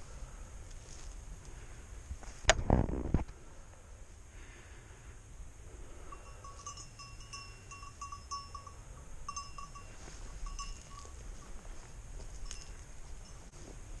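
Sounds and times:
dog collar bell jingling: 6.1s - 11.6s, 12.3s - 13.5s.

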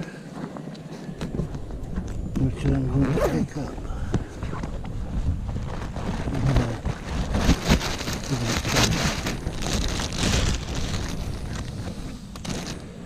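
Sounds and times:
plastic bag crackling: 5.3s - 13.0s.

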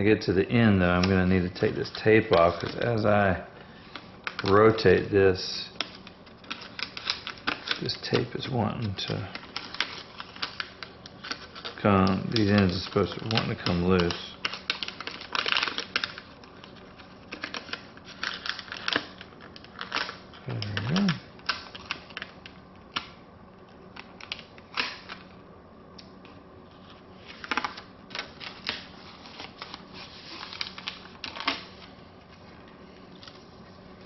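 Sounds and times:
plastic film crinkling and clicking: 0.1s - 34.0s
person humming: 20.4s - 21.3s.

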